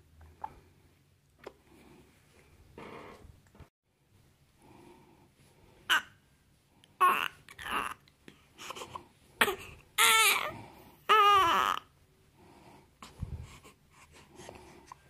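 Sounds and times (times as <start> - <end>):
baby crying: 7.0 - 8.0, 9.4 - 11.9
baby whimpering: 7.0 - 8.0, 8.6 - 11.8.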